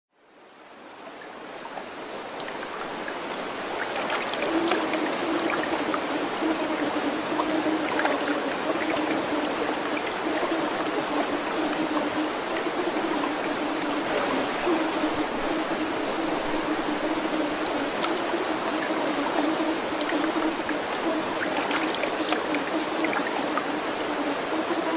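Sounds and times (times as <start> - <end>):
stream rushing over rocks: 0.2 - 24.9
small water splashes: 0.6 - 24.3.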